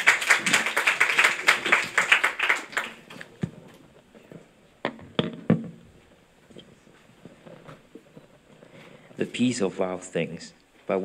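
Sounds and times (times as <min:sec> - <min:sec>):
audience clapping: 0:00.0 - 0:03.4.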